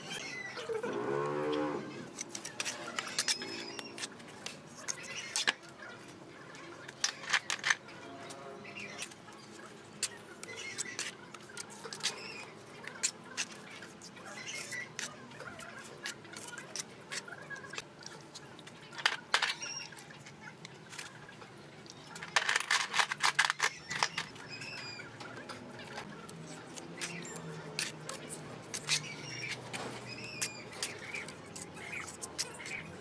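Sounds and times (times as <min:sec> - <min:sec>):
birds chirping: 0:23.6 - 0:33.0.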